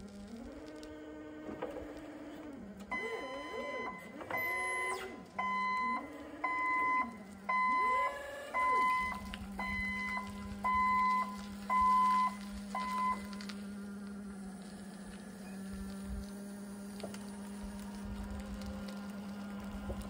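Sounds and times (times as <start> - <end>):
forklift engine revving: 0.0 - 20.0
forklift backup alarm beeping: 1.6 - 13.8.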